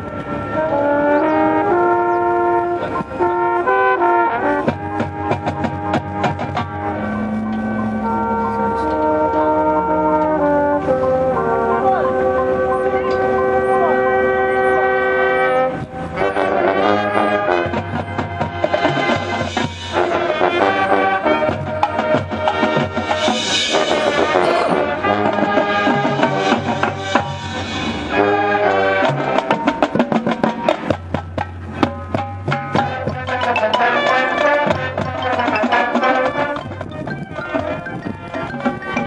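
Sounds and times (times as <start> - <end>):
marching band playing: 0.0 - 39.0.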